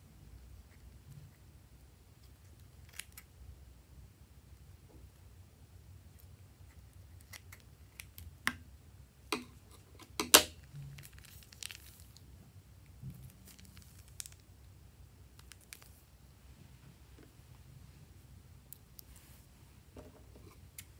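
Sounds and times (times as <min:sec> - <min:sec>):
plastic bag crinkling: 0:10.9 - 0:12.2, 0:13.3 - 0:14.4.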